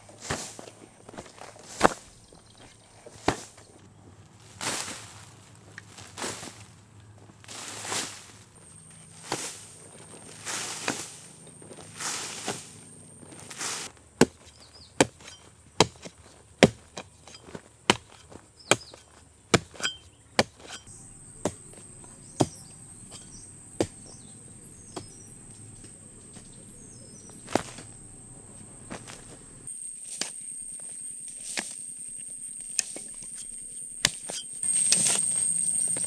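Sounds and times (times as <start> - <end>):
hoe scraping soil: 0.0 - 36.0
hoe chopping into soil: 0.2 - 2.4, 3.1 - 3.7, 9.0 - 28.1, 28.9 - 29.4.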